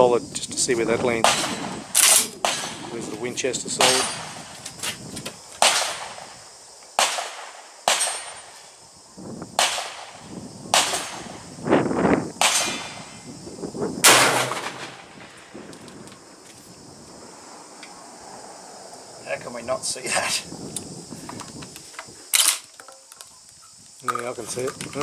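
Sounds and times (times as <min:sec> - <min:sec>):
gunshots: 0:01.2 - 0:02.9, 0:03.8 - 0:04.4, 0:05.6 - 0:06.3, 0:07.0 - 0:08.4, 0:09.6 - 0:10.2, 0:10.8 - 0:11.4, 0:14.0 - 0:15.3.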